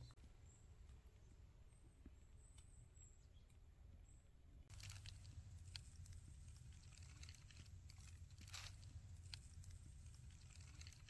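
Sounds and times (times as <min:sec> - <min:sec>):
dry leaves crackling and rustling: 0:04.7 - 0:11.0
low steady rumble: 0:04.7 - 0:11.0.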